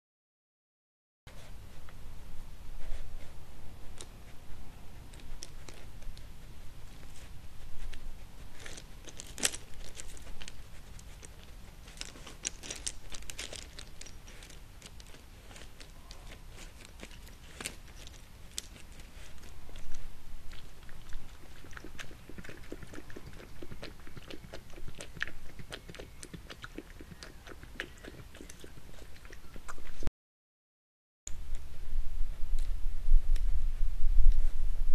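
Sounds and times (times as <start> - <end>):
badger lapping water: 21.0 - 29.9.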